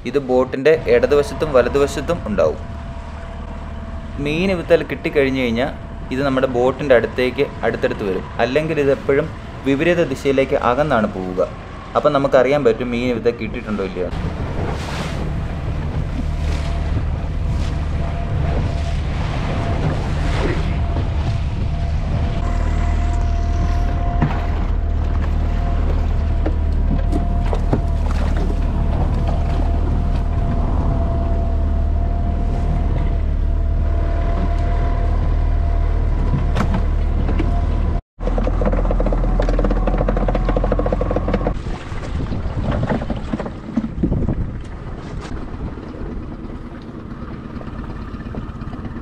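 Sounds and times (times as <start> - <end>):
water rushing past hull: 0.7 - 38.0, 41.4 - 49.0
outboard motor running: 0.7 - 49.0.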